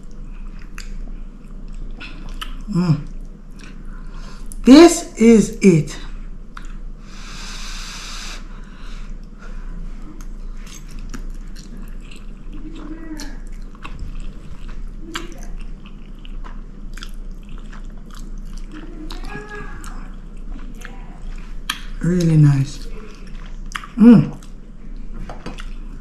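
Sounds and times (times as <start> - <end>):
person chewing: 0.0 - 4.6, 6.1 - 26.0
closed-mouth hums: 1.9 - 3.2, 22.0 - 24.6
wet mouth clicks: 2.1 - 3.8.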